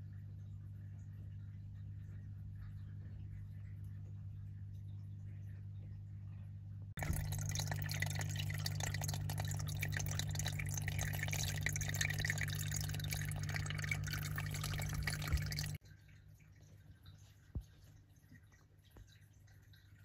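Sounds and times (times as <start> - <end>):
steady low hum: 0.0 - 15.8
small waterfall trickling: 7.0 - 20.0.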